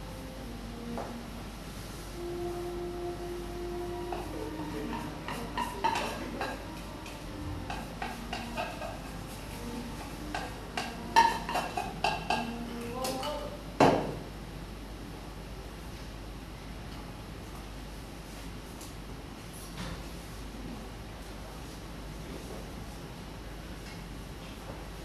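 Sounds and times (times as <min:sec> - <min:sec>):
utensil stirring in metal pot: 0:03.9 - 0:13.3
utensils and bottles knocking: 0:04.1 - 0:13.4.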